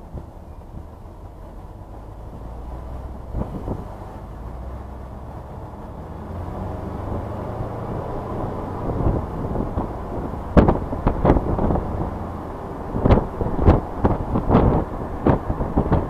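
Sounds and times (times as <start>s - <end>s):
car engine: 0.0s - 16.0s
road noise: 0.0s - 16.0s
sharp thumps: 9.1s - 12.2s.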